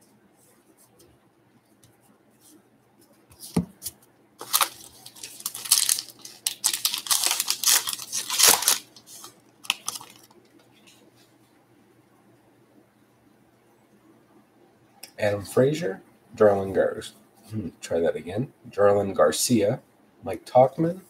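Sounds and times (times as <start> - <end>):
card pack wrapper tearing: 4.4 - 10.3.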